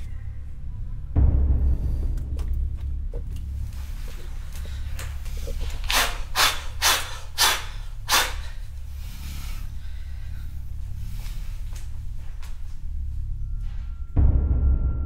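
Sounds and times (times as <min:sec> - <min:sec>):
low steady drone: 0:00.0 - 0:15.0
short sharp hissing breaths: 0:05.8 - 0:10.3.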